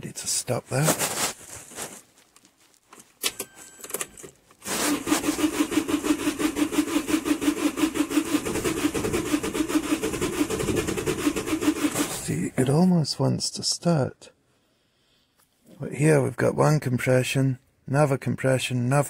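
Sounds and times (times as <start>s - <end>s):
starter motor cranking diesel engine: 4.6s - 12.4s.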